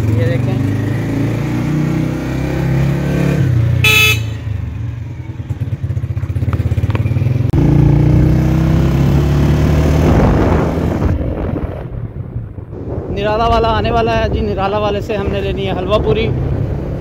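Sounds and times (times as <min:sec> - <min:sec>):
motorcycle engine accelerating: 0:00.0 - 0:12.7.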